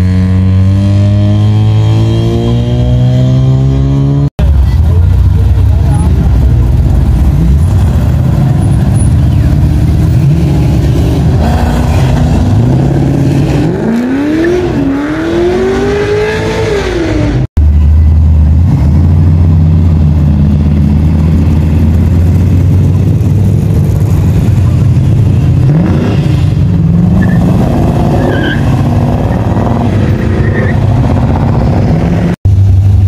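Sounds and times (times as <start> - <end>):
car engine revving hard: 10.0 - 17.5.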